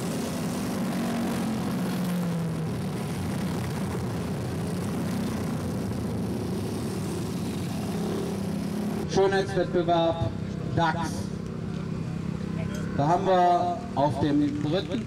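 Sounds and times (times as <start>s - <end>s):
engine drone: 0.0s - 15.0s
outdoor background noise: 0.0s - 15.0s.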